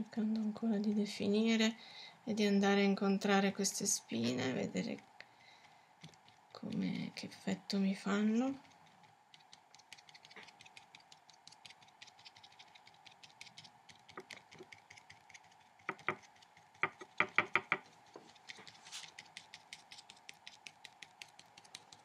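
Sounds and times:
drawing tool tapping on paper: 16.8 - 17.9.

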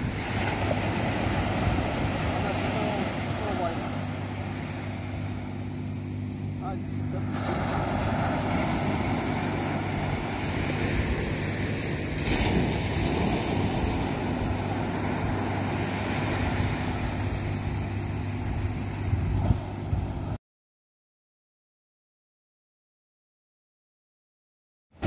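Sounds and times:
ocean surf breaking: 0.0 - 20.2
wind buffeting microphone: 7.4 - 20.4.

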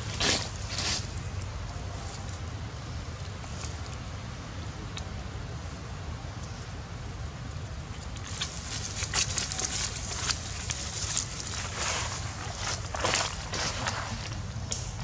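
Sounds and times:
low wind rumble on microphone: 0.0 - 15.0
dry leaves crackling and rustling: 8.2 - 15.0.

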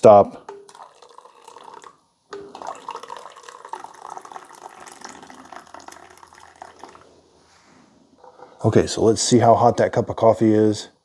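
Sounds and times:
coffee pouring into a glass mug: 0.5 - 7.1.

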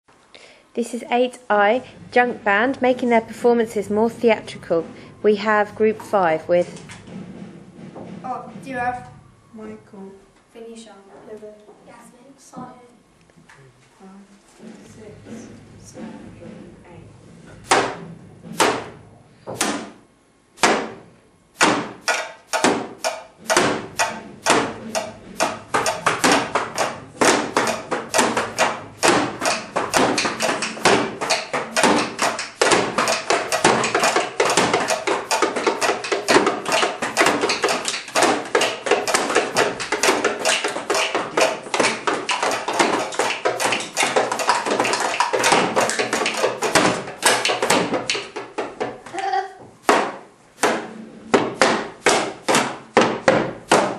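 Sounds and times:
household objects tapped in rhythm: 17.6 - 20.0, 20.6 - 53.9.

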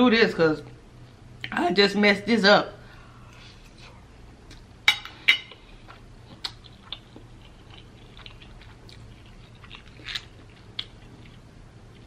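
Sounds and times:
chewing noodles: 5.8 - 12.0.

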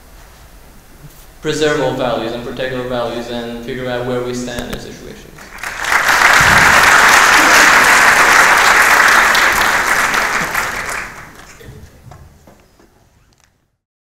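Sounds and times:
audience applauding: 5.4 - 11.7.

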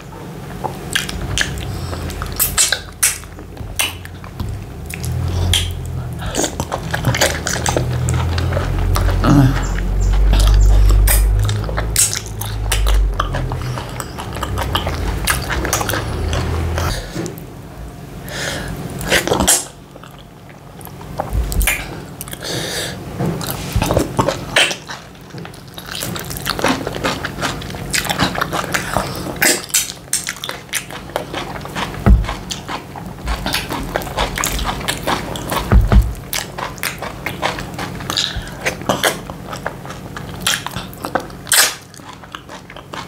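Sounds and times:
chewing and lip smacking: 0.5 - 17.4, 19.0 - 22.5, 23.4 - 43.0
low rumble: 4.1 - 18.0.

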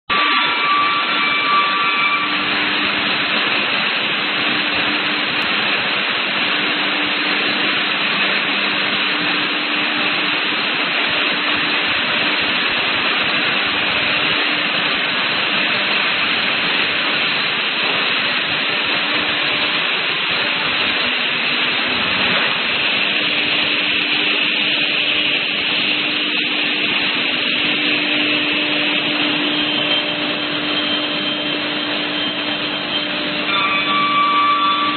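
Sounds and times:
low machine hum: 0.1 - 34.9
panel saw machine running: 0.1 - 34.9.

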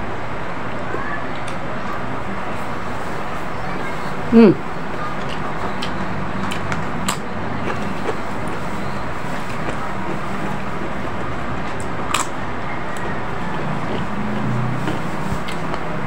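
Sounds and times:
crackers crunching when bitten: 9.3 - 12.4.

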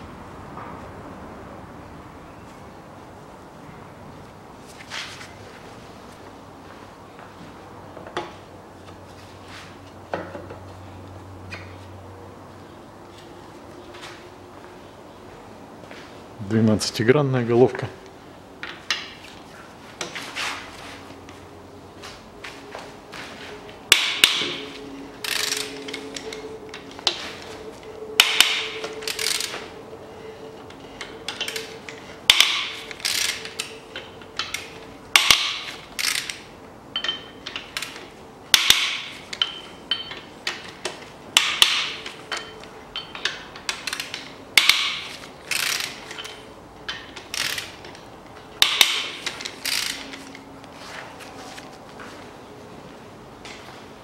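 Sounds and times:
ratchet wrench clicking: 25.2 - 26.4, 28.2 - 29.6, 31.3 - 38.0, 41.4 - 48.0, 48.6 - 50.2.

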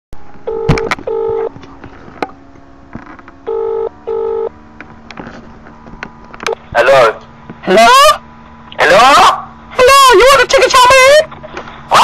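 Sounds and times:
telephone double ring tone: 0.4 - 1.5, 3.5 - 4.5.

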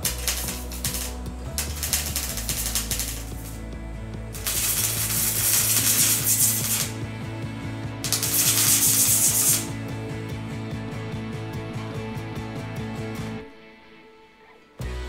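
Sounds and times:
welder arc crackling: 0.0 - 3.7, 4.3 - 7.0, 8.0 - 9.8.

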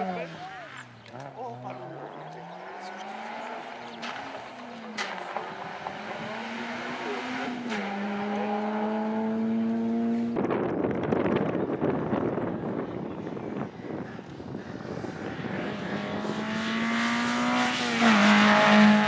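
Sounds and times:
rally car engine revving: 0.0 - 19.0
wind noise on microphone: 9.7 - 18.9.

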